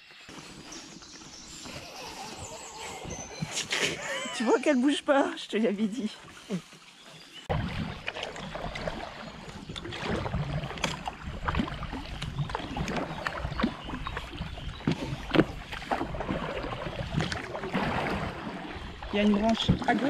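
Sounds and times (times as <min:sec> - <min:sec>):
paddle splashing in water: 0:00.3 - 0:05.0, 0:06.0 - 0:20.0
water dripping: 0:07.7 - 0:20.0.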